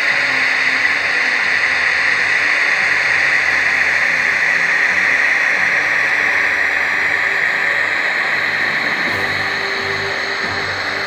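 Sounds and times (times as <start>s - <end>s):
model locomotive running with hiss: 0.0s - 11.0s.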